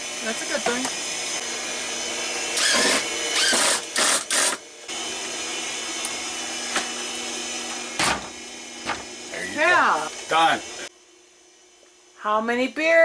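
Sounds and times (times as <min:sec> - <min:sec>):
drill driving screws: 0:02.5 - 0:04.6.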